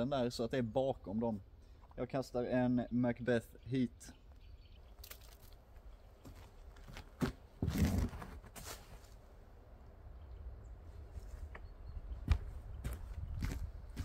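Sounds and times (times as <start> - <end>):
quick footsteps: 5.0 - 9.2, 12.2 - 14.0
wind rumble on microphone: 10.2 - 14.0.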